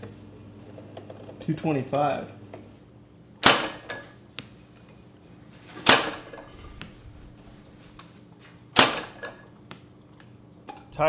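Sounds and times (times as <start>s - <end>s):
arrow striking target: 3.4s - 3.9s, 5.8s - 6.4s, 8.8s - 9.3s.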